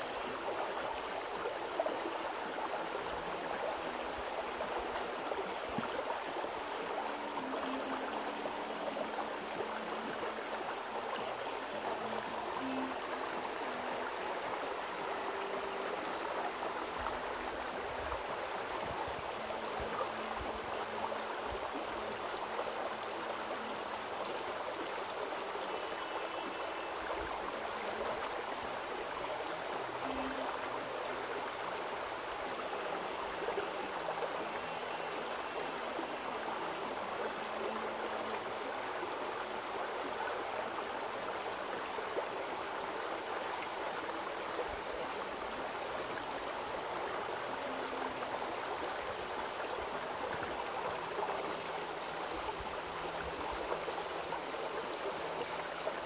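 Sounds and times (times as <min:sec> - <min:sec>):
river rushing: 0:00.0 - 0:56.0.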